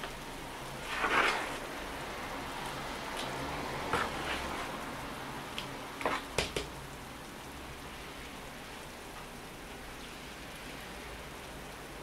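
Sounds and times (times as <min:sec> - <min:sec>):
steady rain falling: 0:00.0 - 0:12.0
plastic scoop scraping: 0:00.8 - 0:01.6.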